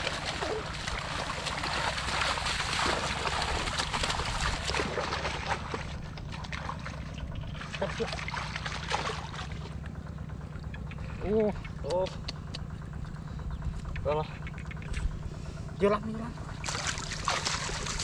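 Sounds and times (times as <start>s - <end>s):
hands splashing in muddy water: 0.0s - 9.8s, 16.6s - 18.0s
low steady hum: 0.0s - 18.0s.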